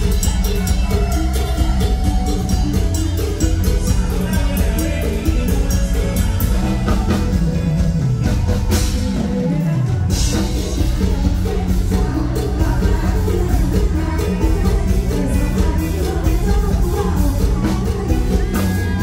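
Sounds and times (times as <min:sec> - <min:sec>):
band playing through sound system: 0:00.0 - 0:19.0
woman singing into microphone: 0:08.7 - 0:19.0.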